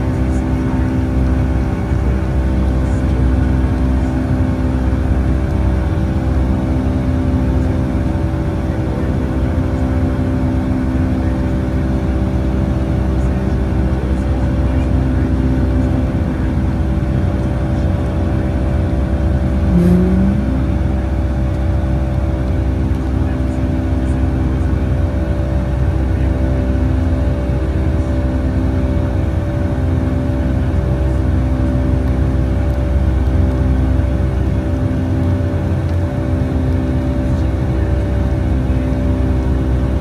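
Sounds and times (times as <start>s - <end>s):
aircraft cabin engine drone: 0.0s - 40.0s
short rising tone: 19.6s - 21.0s.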